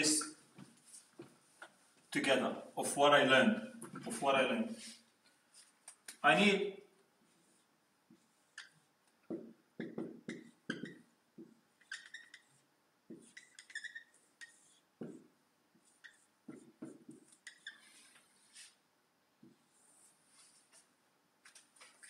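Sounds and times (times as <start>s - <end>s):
marker scraping on whiteboard: 3.8s - 6.2s, 7.2s - 18.8s, 19.4s - 22.0s
marker squeaks on whiteboard: 7.4s - 18.8s.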